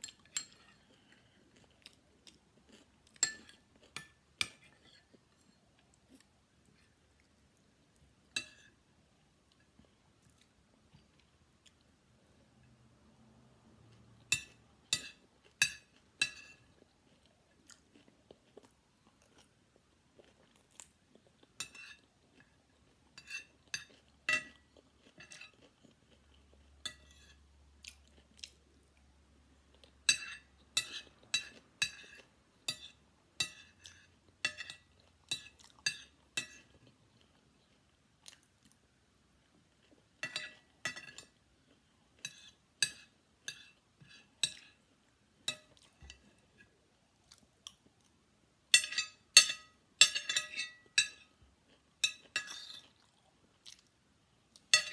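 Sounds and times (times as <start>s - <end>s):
chewing: 0.1s - 7.4s, 15.4s - 29.0s, 51.7s - 53.9s
spoon clinking on ceramic plate: 48.7s - 51.3s.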